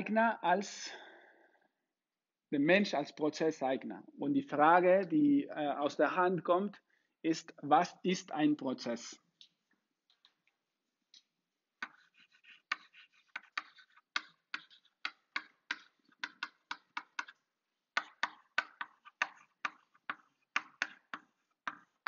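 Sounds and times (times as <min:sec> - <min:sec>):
chalk scratching on a blackboard: 0:11.8 - 0:17.4, 0:18.0 - 0:22.0.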